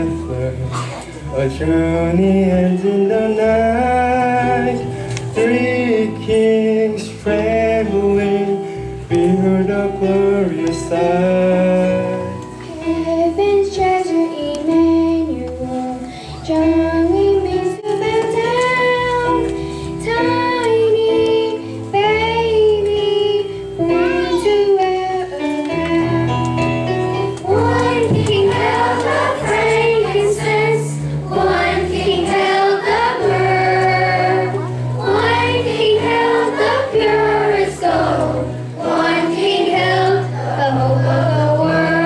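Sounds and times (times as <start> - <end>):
instrumental accompaniment: 0.0 - 42.0
children's choir singing: 12.8 - 26.4, 27.3 - 42.0.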